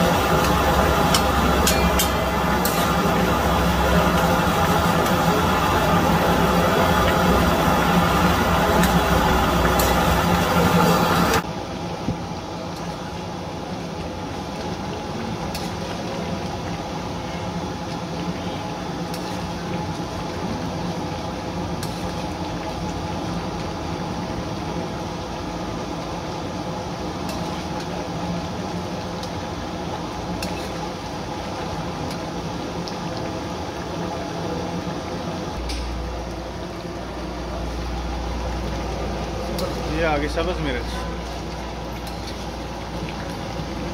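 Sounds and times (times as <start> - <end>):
liquid bubbling in a wok: 0.0 - 43.9
low hum: 35.5 - 39.9.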